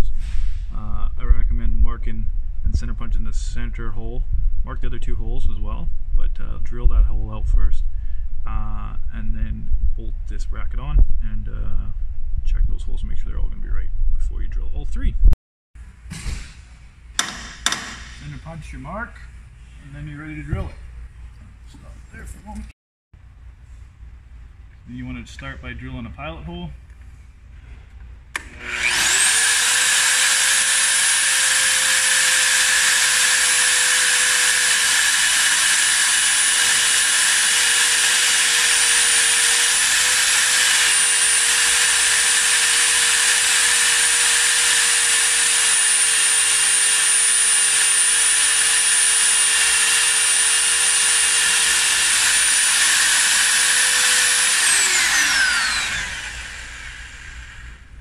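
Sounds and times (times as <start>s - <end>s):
drill press whining: 17.2s - 18.3s, 28.3s - 58.0s.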